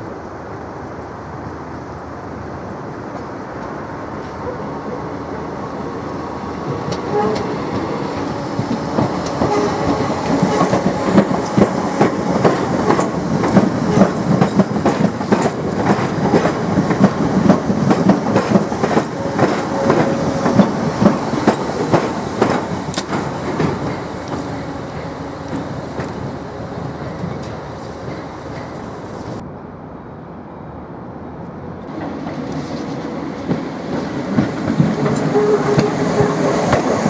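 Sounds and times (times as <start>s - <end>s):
train passing: 0.0s - 37.0s
train wheels clattering: 6.6s - 29.4s, 31.9s - 37.0s.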